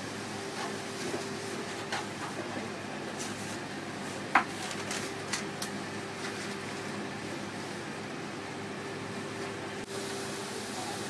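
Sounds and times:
ventilation fan humming: 0.0 - 11.0.

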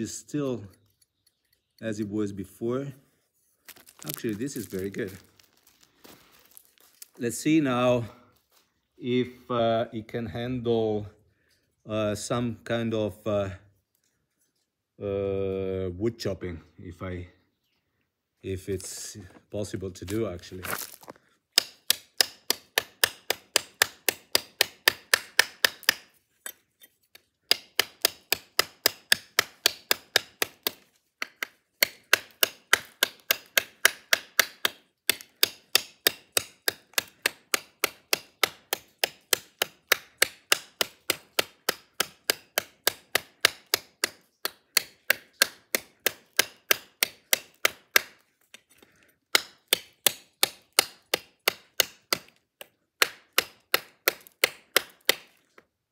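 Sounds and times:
blade chopping into wood: 20.1 - 26.6, 27.4 - 48.3, 49.3 - 55.4.

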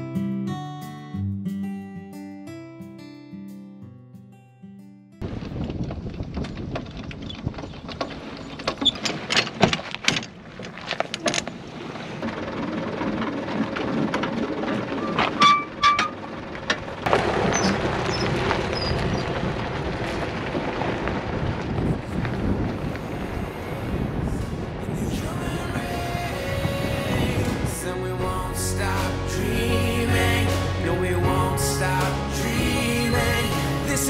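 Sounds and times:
short squeaks: 7.1 - 11.7, 14.7 - 16.4, 17.5 - 19.2.

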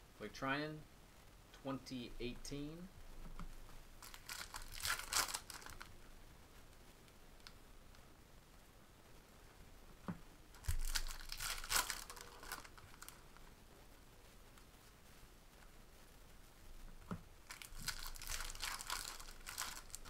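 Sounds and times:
foil wrappers tearing and crinkling: 4.0 - 5.9, 10.6 - 13.2, 17.5 - 20.0.

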